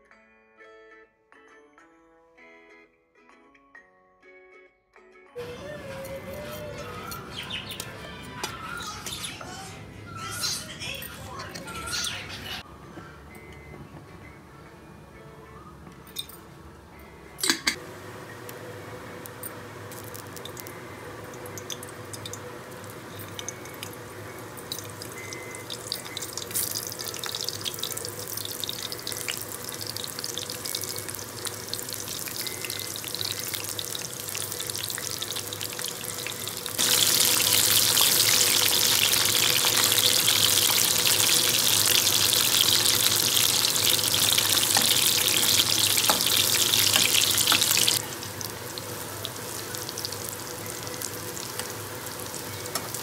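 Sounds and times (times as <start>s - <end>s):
food frying in hot oil: 19.6s - 53.0s.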